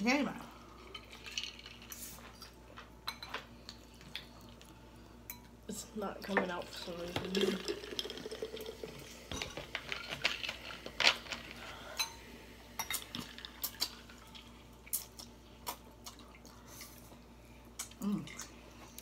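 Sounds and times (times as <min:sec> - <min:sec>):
forks clinking on ceramic bowls: 0:12.0 - 0:12.2.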